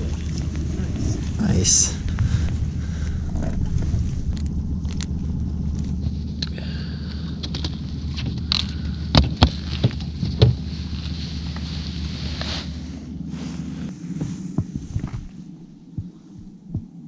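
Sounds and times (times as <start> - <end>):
boat motor humming: 0.0 - 17.0
knocks and clatters in boat: 7.4 - 12.8.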